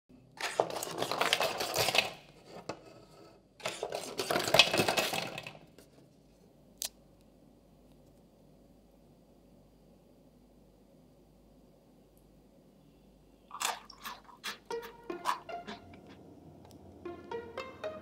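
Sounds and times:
cookies rattling onto plastic tray: 0.4 - 2.2, 3.6 - 5.7.

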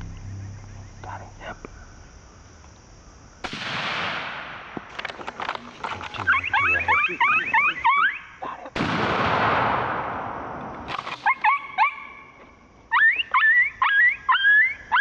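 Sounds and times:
coyotes yipping and howling: 5.8 - 8.8, 11.0 - 15.0.

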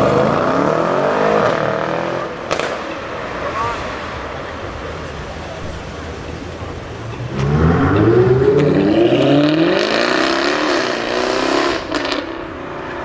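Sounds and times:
sports car engine accelerating: 6.9 - 13.0.

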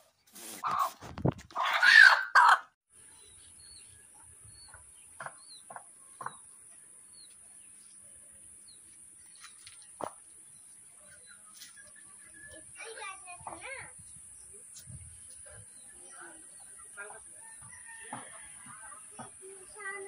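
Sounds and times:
rooster squawk: 0.6 - 1.0, 1.6 - 2.7
clucking calls: 4.6 - 6.5.

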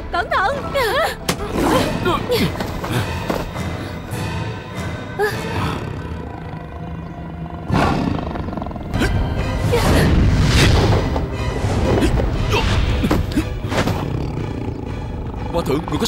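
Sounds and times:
dramatic background music: 0.0 - 16.0
tiger roaring: 5.6 - 9.0.

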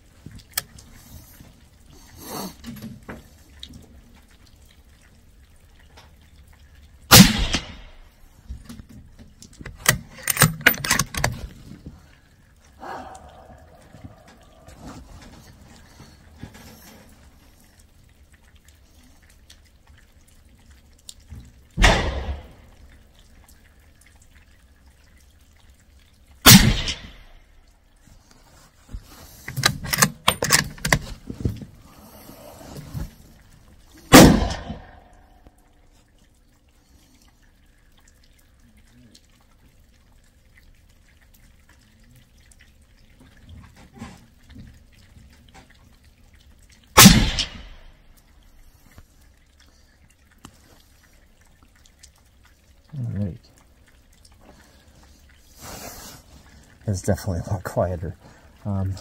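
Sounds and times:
suppressed rifle shots: 7.1 - 7.9, 21.8 - 22.6, 26.4 - 27.2, 34.1 - 35.0, 47.0 - 47.9
rifle bolt metallic clicks: 9.6 - 11.4, 29.5 - 31.0.

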